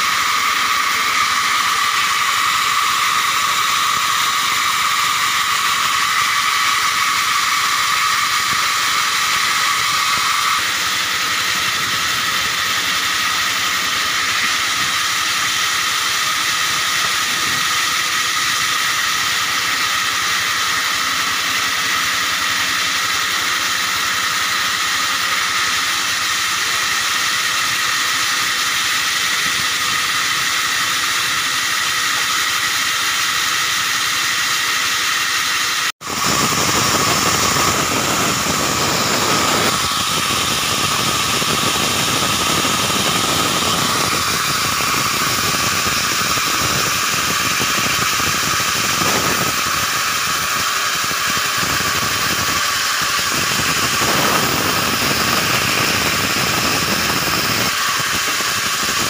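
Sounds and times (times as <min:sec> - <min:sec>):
band saw cutting wood: 0:00.0 - 0:59.0.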